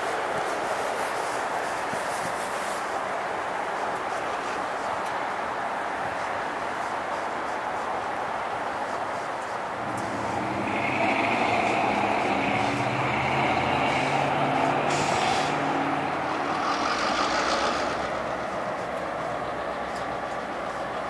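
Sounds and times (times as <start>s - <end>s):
diesel locomotive engine running: 9.7s - 21.0s
high-pitched squeal: 9.8s - 20.0s
brief hiss: 14.8s - 15.7s.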